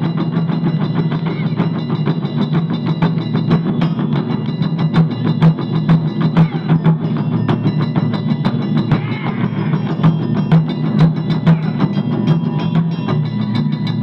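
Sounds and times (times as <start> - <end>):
taiko drums in fast rhythm: 0.0 - 14.0.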